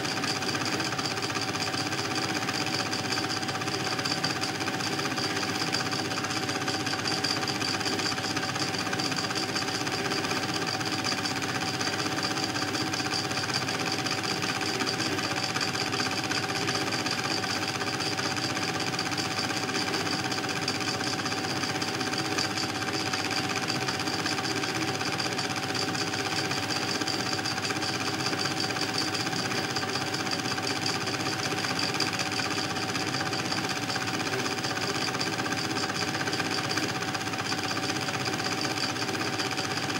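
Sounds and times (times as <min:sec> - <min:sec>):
film projector clattering: 0:00.0 - 0:39.9.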